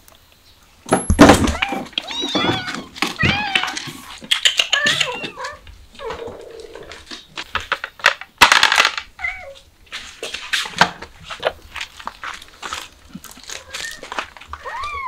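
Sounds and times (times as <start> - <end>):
sharp knock and rustle: 0.9 - 5.1
kitten meowing: 14.6 - 15.0.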